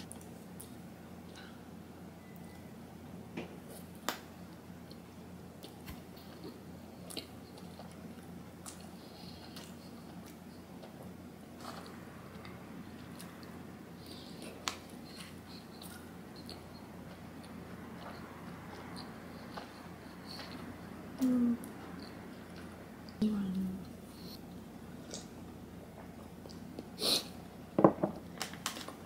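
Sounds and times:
faint low hum: 0.0 - 29.0
person chewing food: 4.8 - 21.0.

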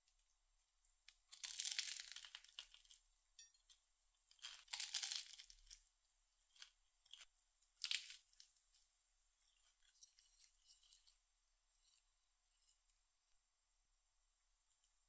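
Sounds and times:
crusty bread tearing: 1.2 - 3.0, 4.3 - 8.8, 9.4 - 11.2.

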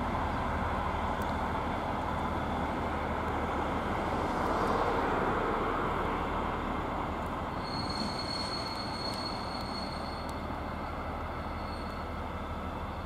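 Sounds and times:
diesel locomotive drone: 0.0 - 13.0
wheels rumbling on rail: 0.0 - 13.0
high wheel squeal: 7.5 - 13.0.

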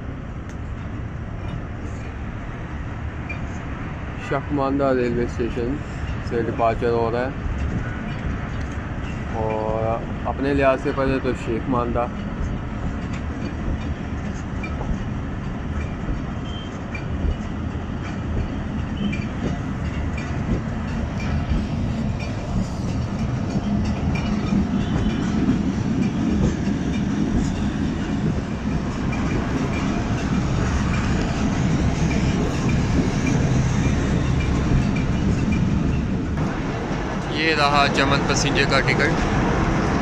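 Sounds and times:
train wheels rumbling on rails: 0.0 - 40.0
faint rail clicks: 5.5 - 10.1, 11.3 - 36.1.

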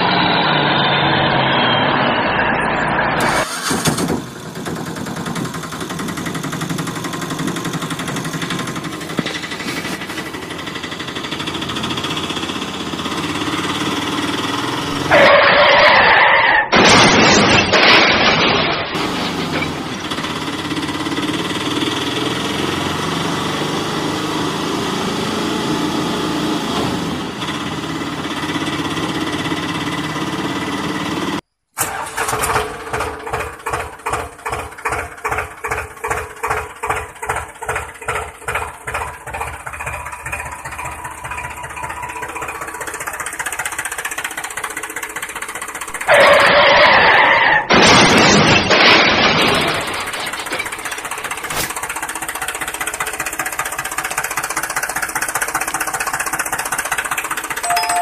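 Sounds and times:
engine running steadily: 3.2 - 15.1, 19.0 - 31.4, 49.8 - 58.0
tractor engine chugging: 3.2 - 15.2, 19.0 - 23.5, 27.0 - 46.8, 49.8 - 58.0.

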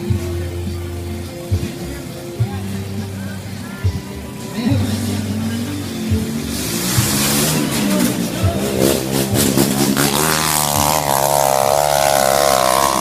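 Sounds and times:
motorcycle engine revving hard: 5.0 - 13.0.

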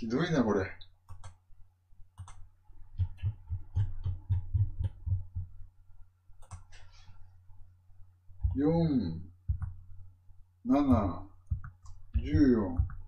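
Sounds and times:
computer mouse clicking: 1.0 - 1.4, 2.2 - 2.4, 6.4 - 6.9.

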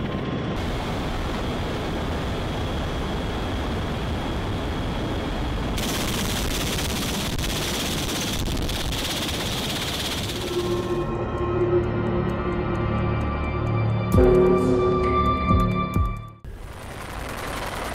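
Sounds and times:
aircraft engine noise in cabin: 0.0 - 13.7
high whine: 0.6 - 15.4.

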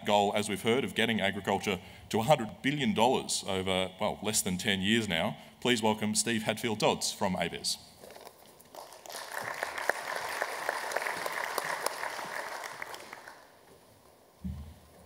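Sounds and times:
audience applauding: 8.6 - 13.7.

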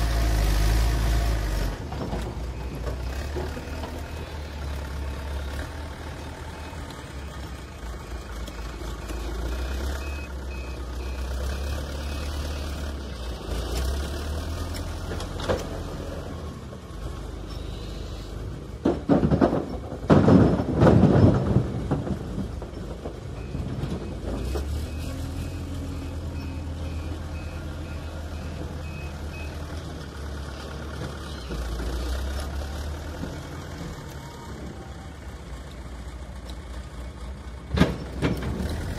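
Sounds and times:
diesel engine running: 0.0 - 38.9
reverse alarm beeping: 10.0 - 12.4.

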